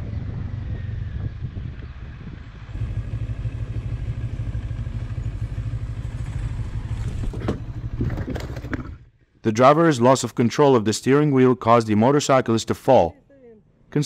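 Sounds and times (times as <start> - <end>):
wind noise on microphone: 0.0 - 2.8
motorcycle engine running: 0.0 - 9.0.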